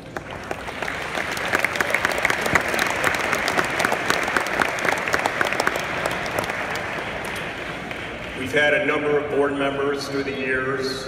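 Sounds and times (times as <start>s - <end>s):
audience applause: 0.0s - 8.5s.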